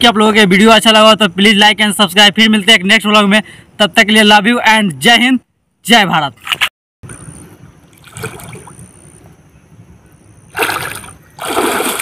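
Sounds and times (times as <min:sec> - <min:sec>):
pond water sloshing: 0:07.8 - 0:09.2, 0:10.5 - 0:12.0
splash of body ducking underwater: 0:10.5 - 0:12.0.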